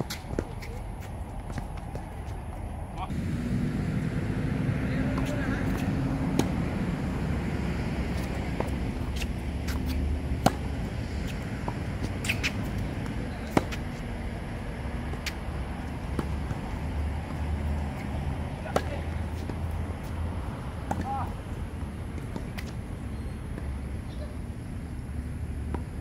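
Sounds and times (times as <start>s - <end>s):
tennis ball struck by rackets: 5.0s - 14.0s, 15.0s - 21.4s
ball bouncing: 8.0s - 14.0s.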